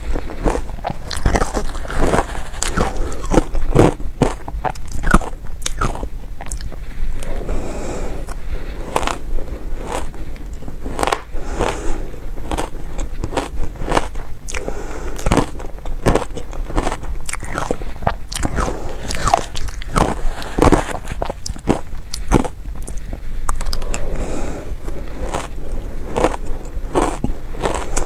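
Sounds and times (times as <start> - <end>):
chewing crunchy shaved ice: 0.0 - 7.4, 8.2 - 28.0.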